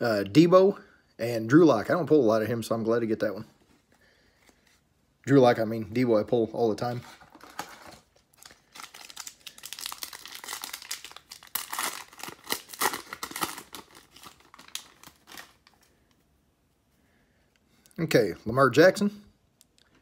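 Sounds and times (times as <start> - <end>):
foil wrapper crinkling and tearing: 7.2 - 15.9.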